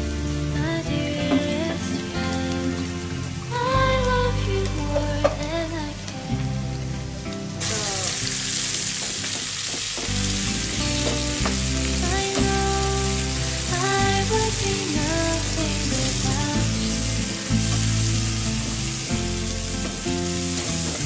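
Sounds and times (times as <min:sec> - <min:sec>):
background music with bass: 0:00.0 - 0:09.0, 0:10.1 - 0:21.0
vegetables sizzling in oil: 0:07.6 - 0:21.0.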